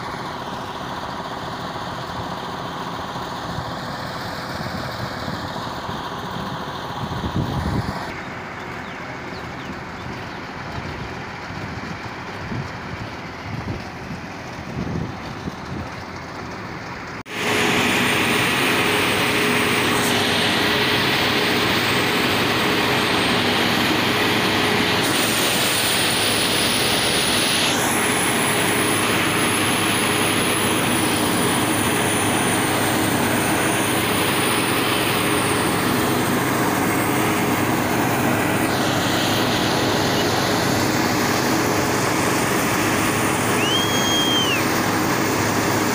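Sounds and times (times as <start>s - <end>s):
harvester machine drone: 0.0s - 45.9s
high machine whine: 17.1s - 45.9s.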